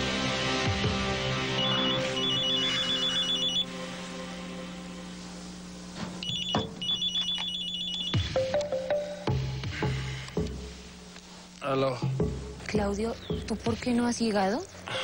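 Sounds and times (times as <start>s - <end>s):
background music: 0.0s - 5.3s, 8.2s - 10.9s
telephone ringing electronic trill: 1.5s - 3.8s, 6.2s - 9.3s.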